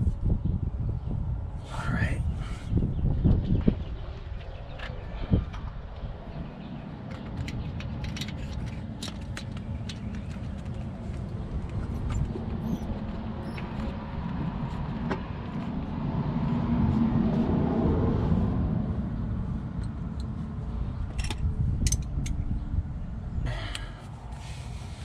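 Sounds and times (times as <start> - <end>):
steady low rumble: 0.0 - 25.0
metallic clicks of hand tools: 21.2 - 22.4.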